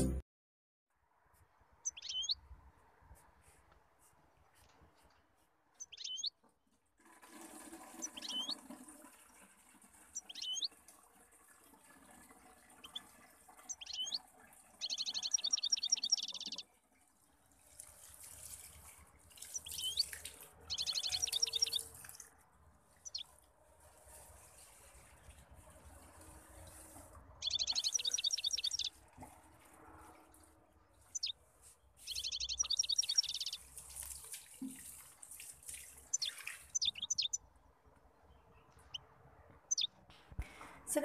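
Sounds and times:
small bird chirping: 1.8 - 2.4, 5.7 - 6.4, 8.0 - 8.6, 10.2 - 10.7, 12.8 - 13.0, 13.6 - 14.2, 14.8 - 16.6, 19.4 - 22.0, 23.0 - 23.3, 27.4 - 29.0, 31.0 - 31.4, 32.0 - 33.6, 36.1 - 37.4, 38.3 - 39.0, 39.6 - 40.0
water running into a watering can: 7.0 - 31.4, 32.0 - 37.4.

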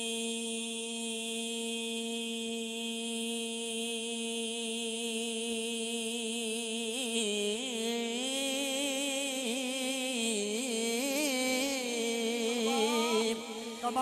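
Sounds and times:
man holding a long sung note: 7.0 - 14.0.

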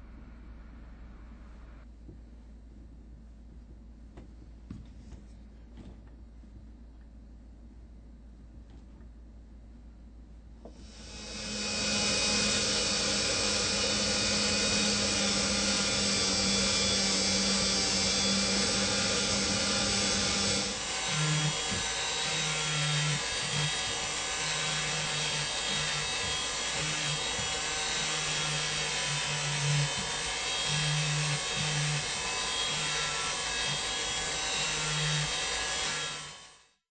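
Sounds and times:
lower hum: 10.8 - 22.2
small motorised tool humming: 10.8 - 36.5.

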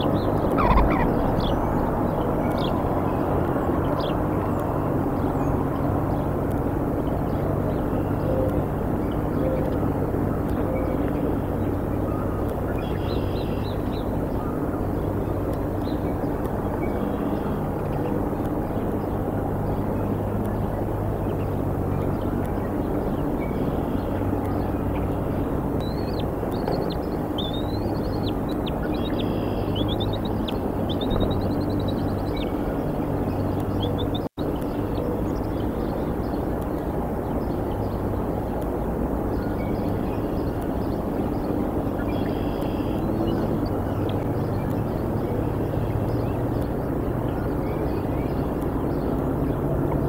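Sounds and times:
eagles calling: 0.0 - 4.2
steady low rumble: 0.0 - 50.0
faint bird chirps: 25.8 - 34.2, 41.9 - 44.9.

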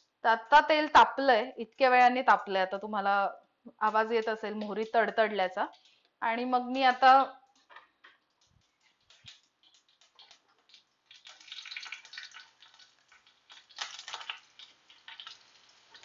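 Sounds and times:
seeds popping in hot oil: 3.8 - 6.2, 6.8 - 16.0.

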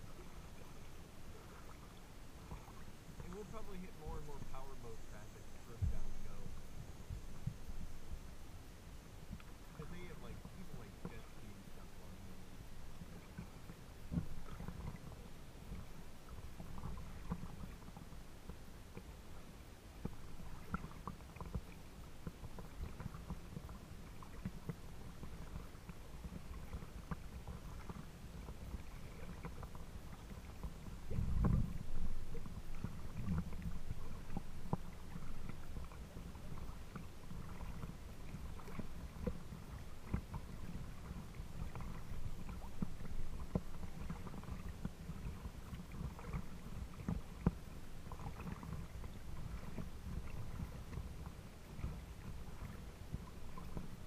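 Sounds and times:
small splashes: 0.0 - 8.2, 20.0 - 54.0
waves lapping against boat: 0.0 - 54.0
low rumble: 2.5 - 13.2, 31.0 - 36.7.

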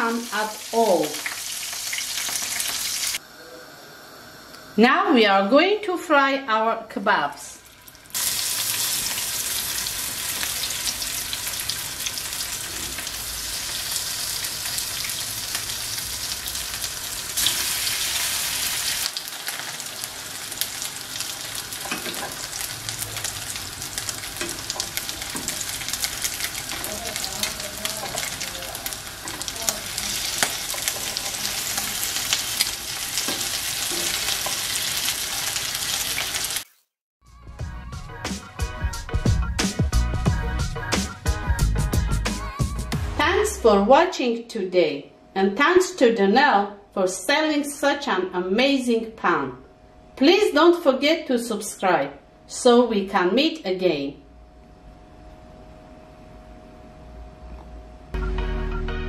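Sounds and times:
meat frying in hot oil: 0.0 - 3.2, 7.6 - 36.8.

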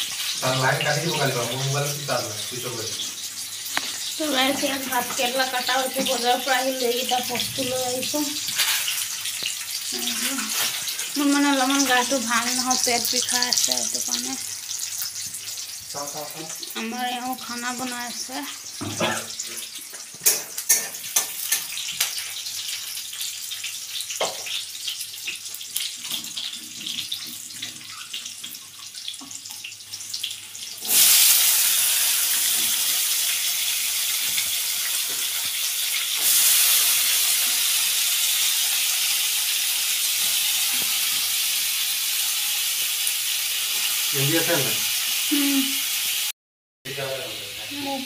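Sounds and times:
food sizzling in hot oil: 0.0 - 48.0
kitchen utensils clattering: 4.4 - 9.1, 18.8 - 22.2.

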